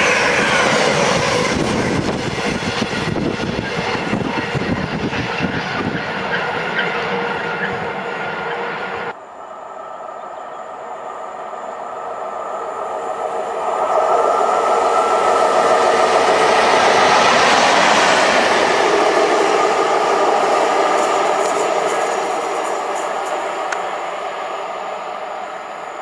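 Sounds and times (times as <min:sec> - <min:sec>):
electric locomotive passing: 0:00.0 - 0:26.0.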